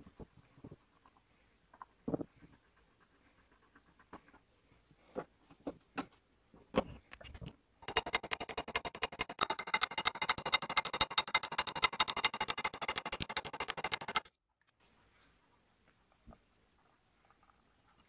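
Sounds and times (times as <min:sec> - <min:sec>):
small metal parts clicking: 0:07.1 - 0:14.3
toy sewing machine clattering: 0:07.8 - 0:14.3.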